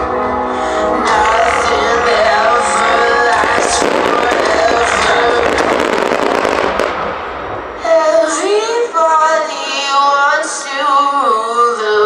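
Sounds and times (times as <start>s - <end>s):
high solo voice singing: 0.8s - 7.0s, 7.7s - 12.0s
fireworks: 2.9s - 9.2s.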